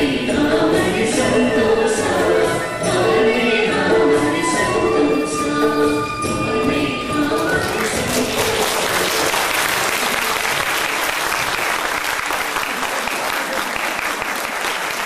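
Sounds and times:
audience applauding: 0:07.6 - 0:15.0.

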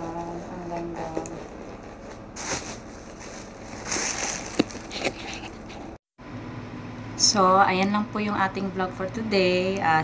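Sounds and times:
plastic wrapping crinkling: 0:00.3 - 0:06.0.

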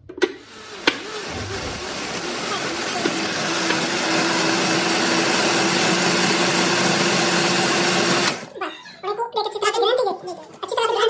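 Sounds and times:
blender whirring: 0:00.2 - 0:08.6.

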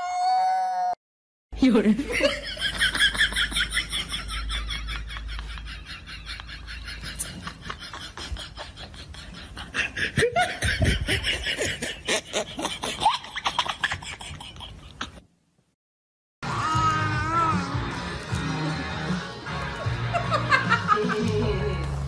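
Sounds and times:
person laughing: 0:02.0 - 0:15.2, 0:19.8 - 0:21.7.

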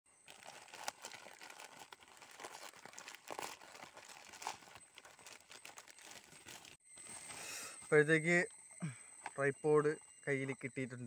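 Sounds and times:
plastic bag crinkling: 0:00.2 - 0:06.8
plastic tearing: 0:00.3 - 0:06.8.

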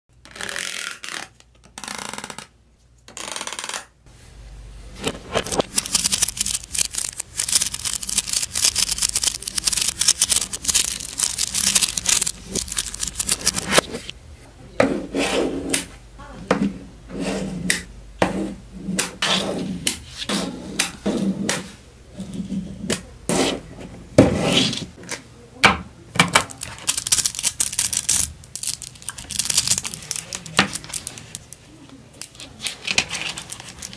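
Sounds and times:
magnet balls clicking: 0:05.6 - 0:13.8, 0:26.4 - 0:31.6.

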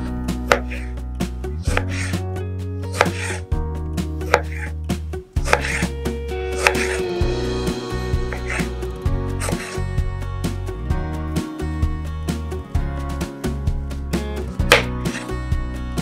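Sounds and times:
background music with held notes: 0:00.0 - 0:16.0
knife slicing fruit: 0:00.4 - 0:01.0, 0:01.6 - 0:02.2, 0:02.8 - 0:03.4, 0:04.2 - 0:04.8, 0:05.4 - 0:07.2, 0:08.2 - 0:09.8, 0:14.7 - 0:15.4.

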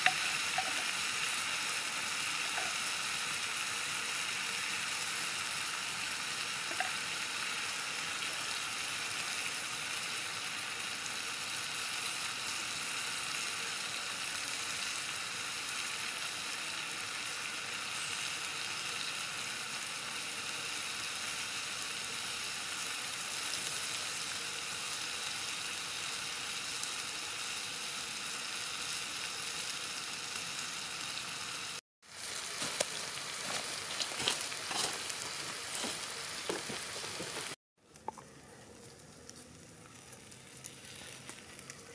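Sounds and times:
eels sizzling on hot stone: 0:00.0 - 0:41.9
faint crackles: 0:32.6 - 0:41.9.

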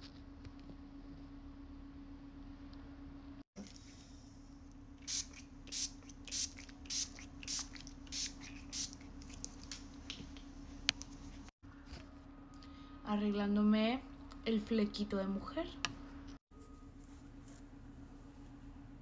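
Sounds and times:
spray bottle squirting: 0:05.0 - 0:10.2.

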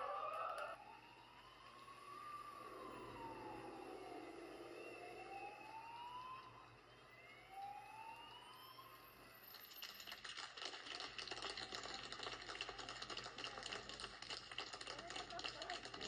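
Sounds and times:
emergency vehicle siren wailing: 0:00.0 - 0:10.0.

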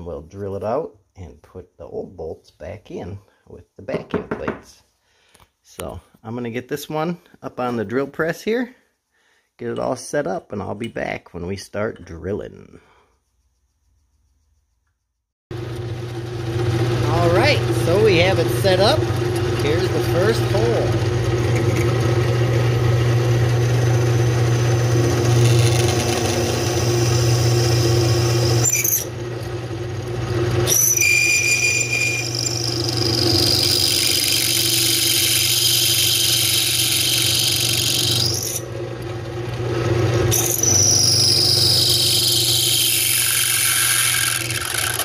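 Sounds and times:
drill press motor hum: 0:15.6 - 0:45.0
drill bit squealing through steel: 0:23.6 - 0:29.1, 0:30.6 - 0:38.6, 0:40.3 - 0:45.0.

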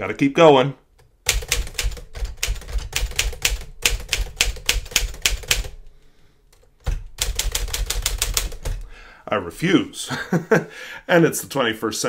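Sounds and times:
manual typewriter typing: 0:01.2 - 0:05.8, 0:06.6 - 0:08.8.

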